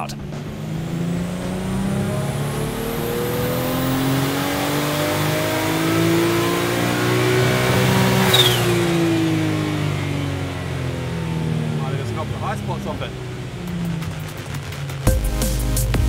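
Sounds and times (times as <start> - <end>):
car engine revving at full throttle: 0.0 - 15.9
rush of noise with falling whistle: 8.2 - 8.9.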